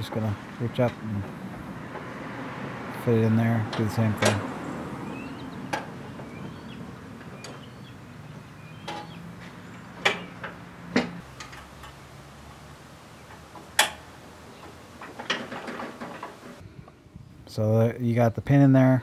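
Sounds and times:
metallic clicks and knocks: 0:03.6 - 0:04.5, 0:08.8 - 0:12.0, 0:13.2 - 0:16.6.

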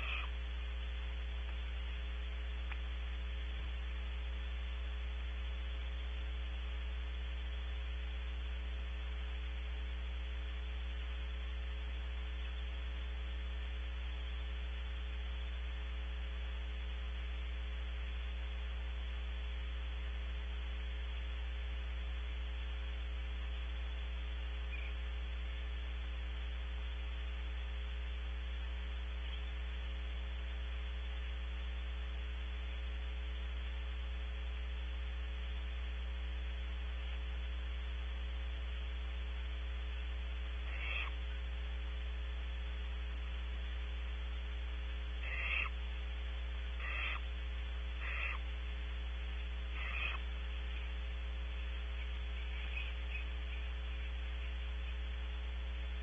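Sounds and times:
electrical mains hum: 0:00.0 - 0:56.0.

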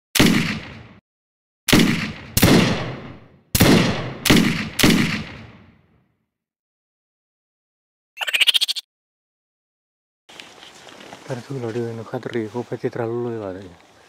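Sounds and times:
gunshots with echo: 0:00.2 - 0:01.0, 0:01.7 - 0:05.8.

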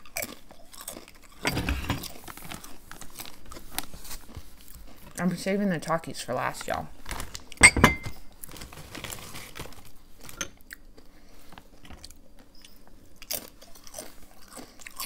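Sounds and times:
crunching and chewing chips: 0:00.0 - 0:01.4, 0:02.0 - 0:07.6, 0:08.2 - 0:15.0.

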